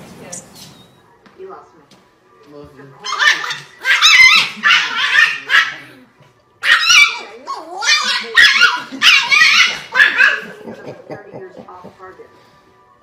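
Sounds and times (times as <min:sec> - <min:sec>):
small dog barking: 0:03.0 - 0:06.0, 0:06.6 - 0:10.6.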